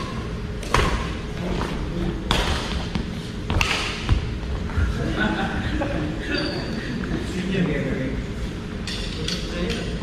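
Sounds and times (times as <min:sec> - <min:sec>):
rackets hitting shuttlecock: 0:00.0 - 0:01.2, 0:02.3 - 0:04.3.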